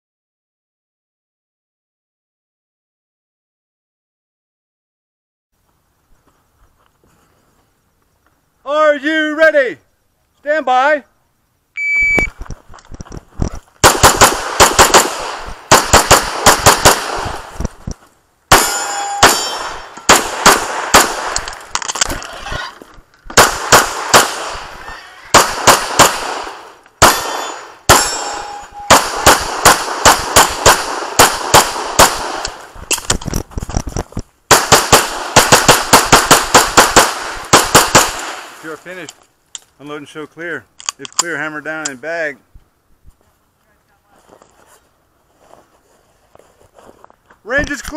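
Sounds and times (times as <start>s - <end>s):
shot timer beep: 11.8s - 12.3s, 28.1s - 28.9s
pistol firing fast strings of shots: 13.8s - 17.6s, 18.5s - 21.5s, 23.3s - 24.7s, 25.3s - 28.3s, 28.9s - 32.6s, 34.5s - 38.6s.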